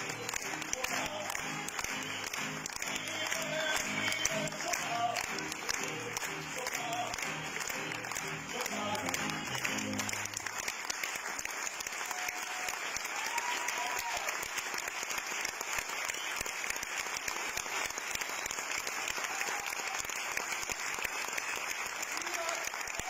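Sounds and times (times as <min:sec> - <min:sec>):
music: 0:00.0 - 0:12.7
audience applauding: 0:00.0 - 0:23.0.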